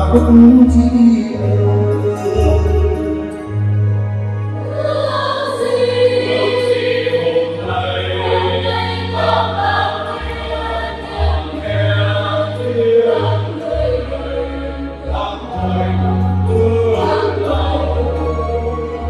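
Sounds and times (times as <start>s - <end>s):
keyboard bass notes: 0.0s - 5.0s
church choir singing: 0.0s - 19.0s.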